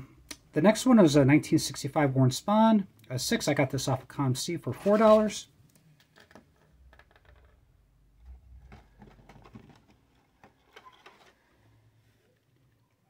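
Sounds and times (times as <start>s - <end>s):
soft handling clicks and rustles: 8.2s - 13.0s.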